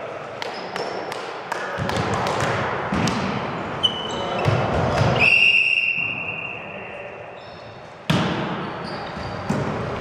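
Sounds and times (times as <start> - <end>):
shoe squeaks: 3.8 - 4.5, 5.2 - 7.9, 8.7 - 9.6
referee's whistle blast: 5.2 - 6.9.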